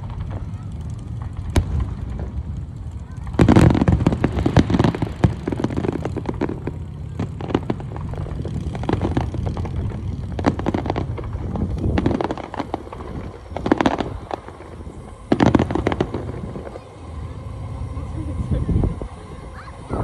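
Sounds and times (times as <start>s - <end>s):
fireworks booming and crackling: 0.0s - 20.0s.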